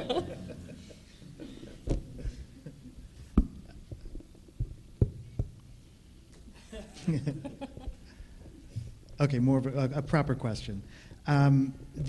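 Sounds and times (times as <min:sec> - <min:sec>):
soft thumps and knocks: 0:01.8 - 0:02.5, 0:03.2 - 0:05.8.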